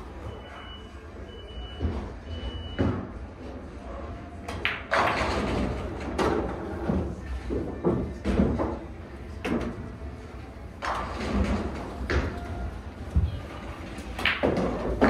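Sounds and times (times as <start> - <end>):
pool balls clicking together: 14.0 - 15.0
cue striking ball: 14.1 - 15.0.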